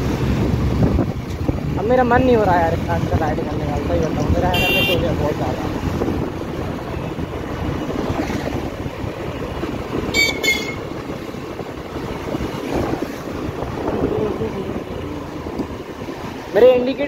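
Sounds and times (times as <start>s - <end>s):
wind noise on microphone: 0.0s - 16.8s
motorbike engine and road noise: 0.0s - 17.0s
vehicle horn toots: 4.5s - 5.1s, 10.1s - 10.9s.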